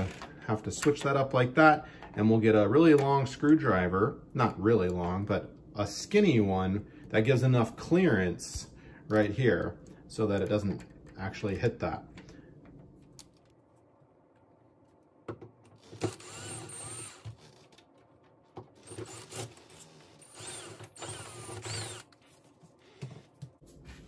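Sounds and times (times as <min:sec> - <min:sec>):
cordless drill motor whine: 0:15.8 - 0:17.6, 0:18.8 - 0:22.1.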